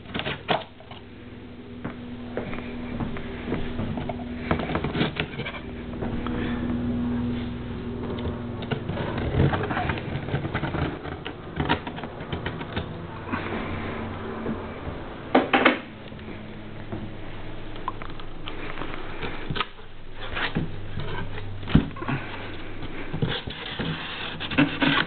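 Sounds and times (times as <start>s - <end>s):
steady low hum: 0.0s - 25.0s
cardboard box scratching and rustling: 23.2s - 25.0s.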